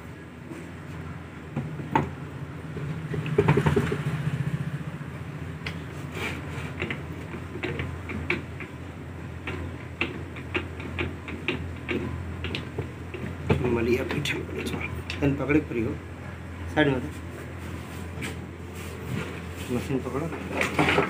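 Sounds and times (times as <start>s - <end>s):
mechanism clicks and knocks: 1.6s - 4.2s, 6.8s - 8.8s, 9.4s - 13.8s, 20.4s - 21.0s.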